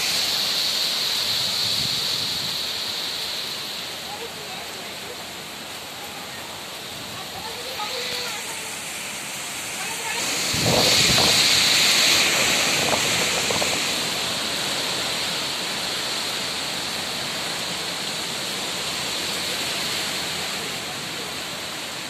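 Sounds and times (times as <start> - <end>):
heavy rain: 0.0 - 22.0
wind gusts: 0.0 - 22.0
wind buffeting microphone: 9.8 - 14.4.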